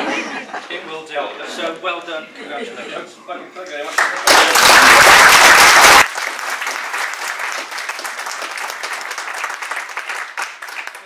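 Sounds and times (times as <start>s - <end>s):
people applauding: 3.9s - 11.0s.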